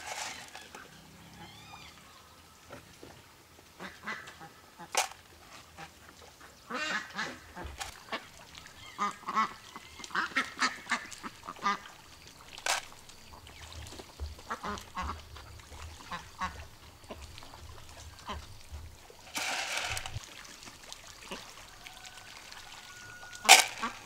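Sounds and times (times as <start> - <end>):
ducks quacking: 3.8 - 5.1, 6.7 - 11.9, 14.4 - 15.3, 16.0 - 17.4, 23.0 - 24.0.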